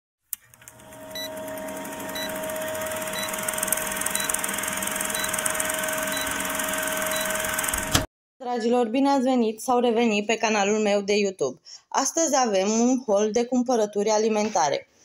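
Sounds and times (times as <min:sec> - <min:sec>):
film projector whirring: 0:00.4 - 0:08.1.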